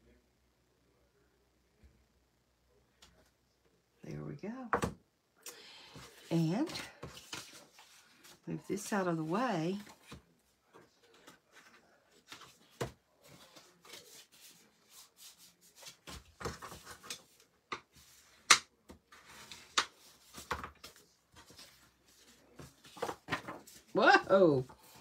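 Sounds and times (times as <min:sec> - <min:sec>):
paper rustling and sliding: 0:06.0 - 0:10.2, 0:19.1 - 0:23.9.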